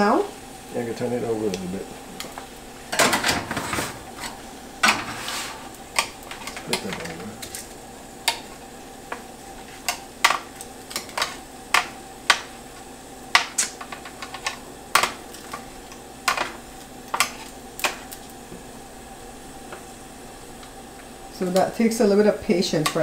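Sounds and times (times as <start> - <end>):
metal tongs clicking on pan: 22.7 - 23.0.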